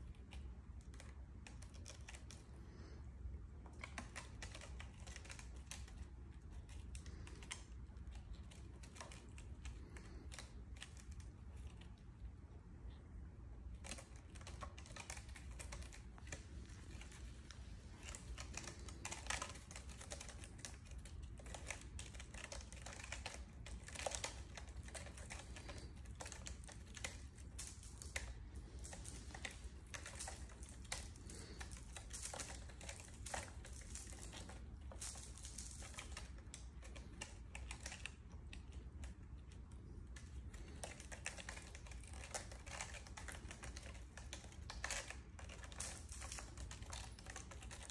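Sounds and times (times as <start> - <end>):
claws scratching sisal rope: 39.8 - 47.9.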